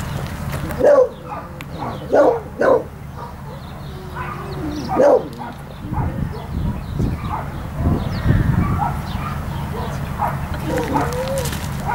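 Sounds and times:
dog barking: 0:00.7 - 0:11.9
dog whining: 0:02.1 - 0:06.5, 0:10.6 - 0:11.9.

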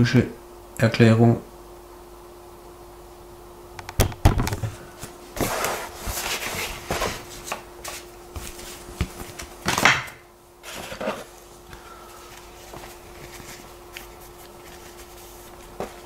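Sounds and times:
paper booklet rustling: 0:12.1 - 0:16.0.

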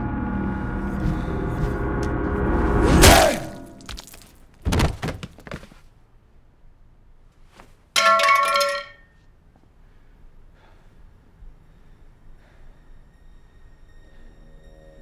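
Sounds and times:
heavy hit: 0:00.0 - 0:04.2
ringing metallic clang: 0:08.0 - 0:09.2.

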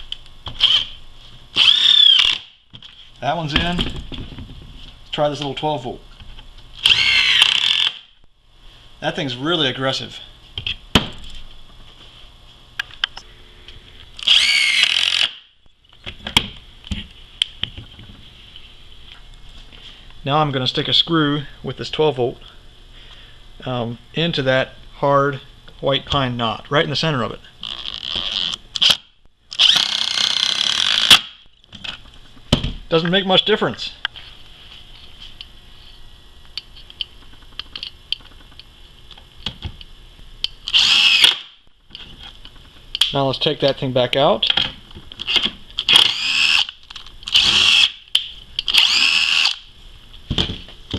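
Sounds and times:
impact driver whine: 0:00.5 - 0:02.6, 0:06.8 - 0:08.2, 0:14.2 - 0:15.6, 0:27.6 - 0:31.5, 0:40.6 - 0:41.7, 0:45.2 - 0:48.1, 0:48.7 - 0:49.7.

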